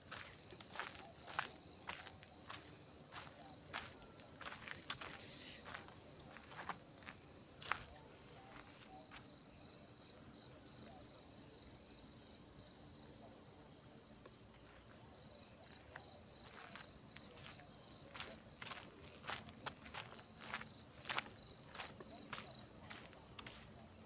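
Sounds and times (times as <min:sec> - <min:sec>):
footsteps on dirt: 0:00.0 - 0:09.3, 0:15.7 - 0:24.0
insects chirring: 0:00.0 - 0:24.0.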